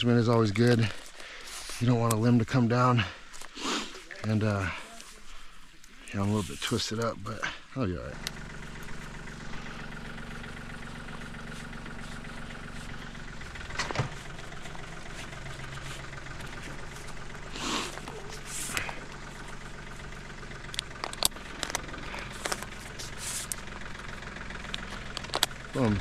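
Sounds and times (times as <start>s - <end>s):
engine idling: 0.0s - 26.0s
climbing rope rustling: 0.1s - 7.5s, 8.5s - 26.0s
climbing hardware clicking: 11.0s - 26.0s.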